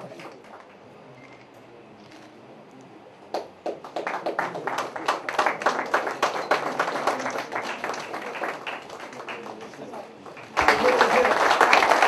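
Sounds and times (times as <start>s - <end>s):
crowd applauding: 3.3s - 12.0s.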